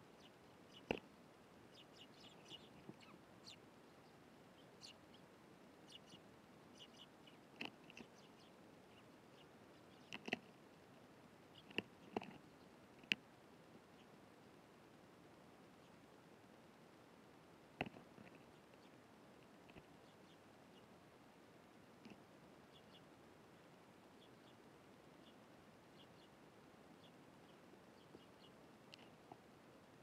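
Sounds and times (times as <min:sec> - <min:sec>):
sparrows chirping: 0:00.0 - 0:01.0, 0:01.7 - 0:10.4, 0:11.5 - 0:12.8, 0:19.7 - 0:20.9, 0:22.6 - 0:24.6, 0:25.2 - 0:26.4, 0:27.0 - 0:29.2.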